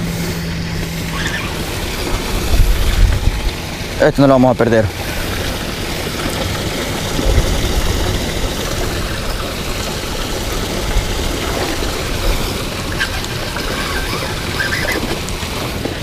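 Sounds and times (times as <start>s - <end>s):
low rumble: 0.0s - 4.2s
wind buffeting microphone: 0.0s - 16.0s.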